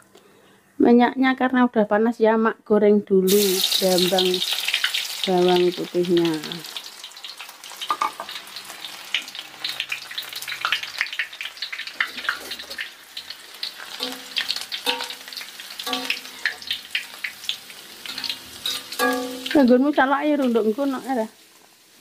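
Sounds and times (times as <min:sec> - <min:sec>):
garlic sizzling in hot oil: 0:03.3 - 0:22.0
metal spoon stirring: 0:14.0 - 0:16.7, 0:18.1 - 0:19.6.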